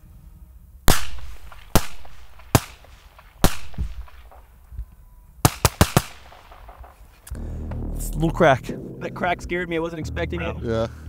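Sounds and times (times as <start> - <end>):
bullets cracking past: 0.9 - 4.7, 5.4 - 7.4.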